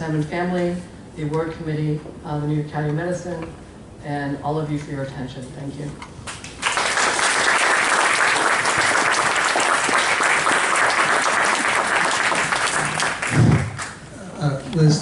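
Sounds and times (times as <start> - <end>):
audience applauding: 6.3 - 14.0.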